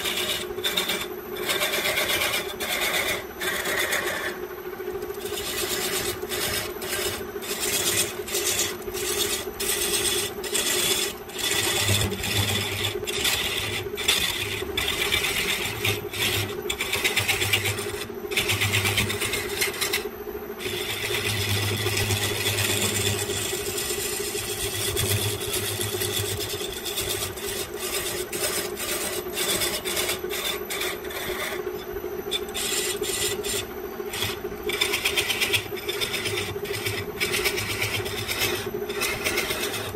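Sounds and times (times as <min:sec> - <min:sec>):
lathe motor hum: 0:00.0 - 0:39.9
tool scraping spinning wood: 0:00.0 - 0:39.9.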